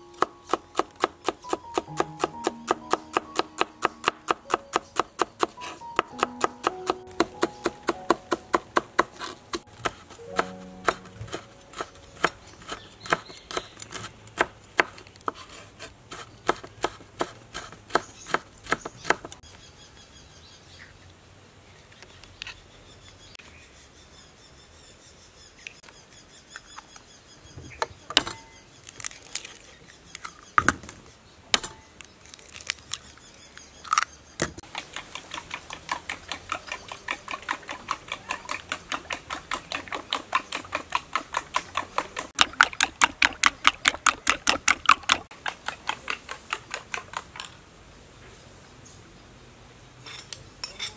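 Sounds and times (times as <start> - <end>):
knife chopping on wooden board: 0.1 - 19.4, 34.7 - 47.2.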